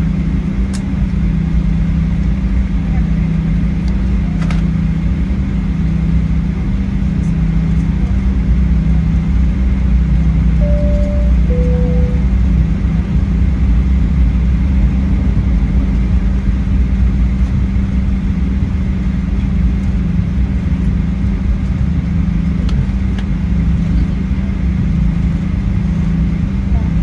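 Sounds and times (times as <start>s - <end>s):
jet engine rumble in cabin: 0.0s - 27.0s
two-note cabin chime: 10.6s - 12.5s.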